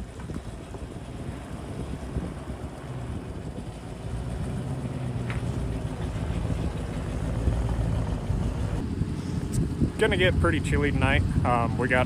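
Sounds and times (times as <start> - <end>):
truck engine running low: 0.0 - 12.0.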